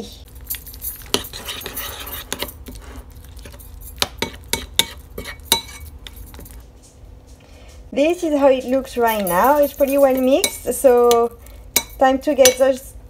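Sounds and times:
spoon scraping a bowl: 0.5s - 6.5s
spoon clinking against bowl: 3.4s - 6.5s, 9.1s - 12.7s.

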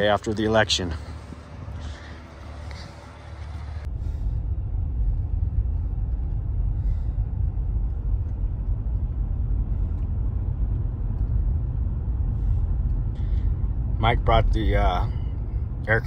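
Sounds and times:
vehicle driving from inside cab: 1.0s - 16.0s.

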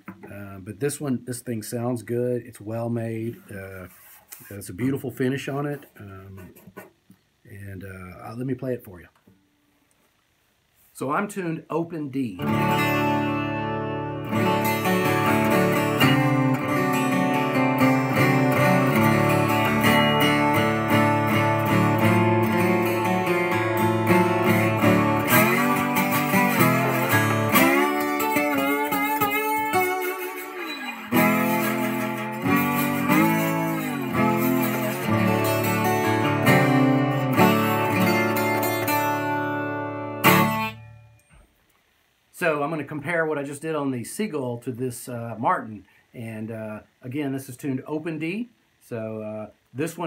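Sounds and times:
acoustic guitar with slide: 12.4s - 41.4s.

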